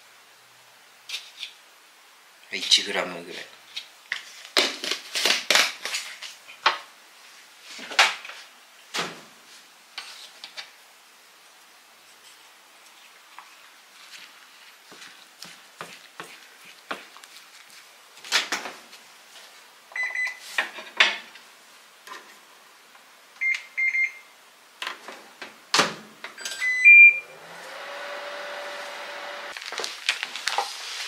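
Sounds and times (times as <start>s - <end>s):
microwave control panel beeps: 19.9s - 20.4s, 23.4s - 24.3s, 26.4s - 27.3s
microwave oven humming: 26.6s - 29.5s.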